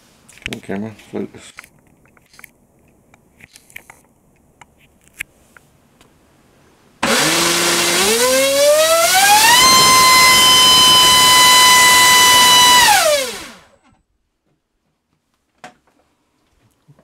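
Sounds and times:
electric motor propeller whine: 7.0s - 13.7s.

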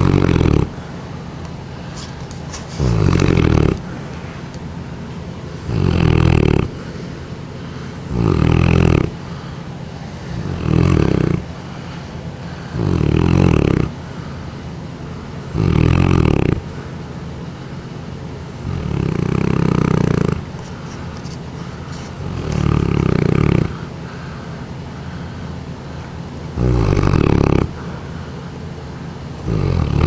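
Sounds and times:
dog snoring: 0.0s - 0.8s, 2.5s - 3.9s, 5.6s - 6.9s, 8.1s - 9.2s, 10.3s - 11.6s, 12.7s - 14.0s, 15.5s - 16.7s, 18.6s - 20.5s, 22.0s - 23.9s, 26.5s - 27.8s, 29.4s - 30.0s.

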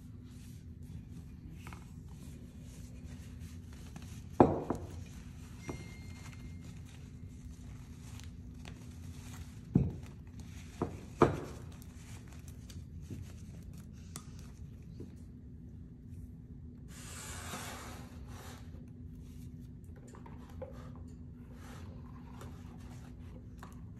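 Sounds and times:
fabric rubbing and rustling: 0.3s - 13.8s.

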